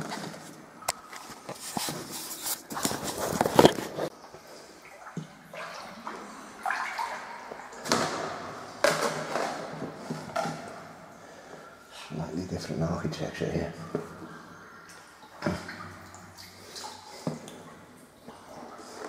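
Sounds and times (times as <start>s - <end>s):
water sloshing around a dinghy: 0.1s - 7.9s.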